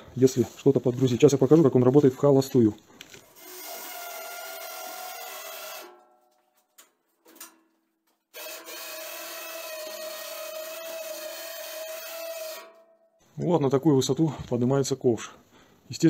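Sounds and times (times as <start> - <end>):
electric winch whining: 8.4 - 12.8.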